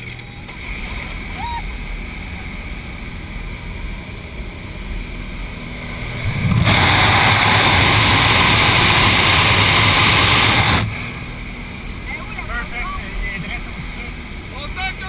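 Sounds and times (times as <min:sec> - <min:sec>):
light aircraft engine droning: 0:00.0 - 0:15.0
loud wind rush: 0:05.5 - 0:11.4.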